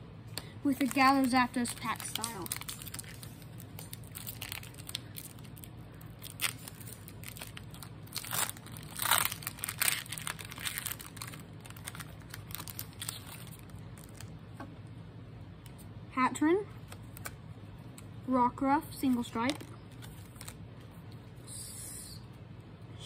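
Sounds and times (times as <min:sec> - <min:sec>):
foil wrapper crinkling and tearing: 0:00.6 - 0:14.3, 0:19.1 - 0:20.6.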